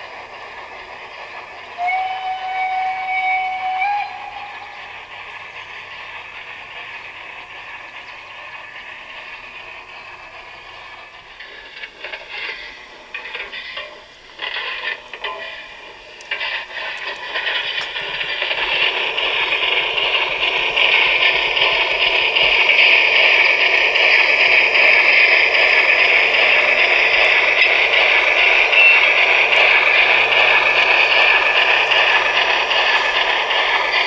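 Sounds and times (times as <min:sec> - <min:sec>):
model train wheels clattering: 0:00.0 - 0:34.0
steam running sound: 0:00.0 - 0:34.0
steam whistle blast: 0:01.7 - 0:05.1.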